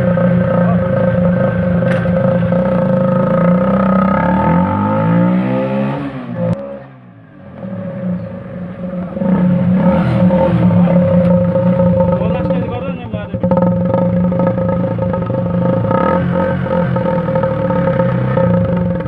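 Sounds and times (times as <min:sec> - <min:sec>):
motorcycle exhaust note: 0:00.0 - 0:19.0.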